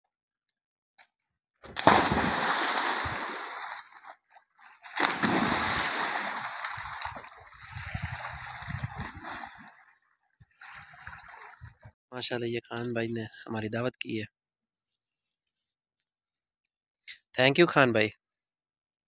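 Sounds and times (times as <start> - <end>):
big splash into pool: 1.8 - 4.0, 4.8 - 9.8
swimmers splashing: 1.8 - 4.2, 4.9 - 7.6.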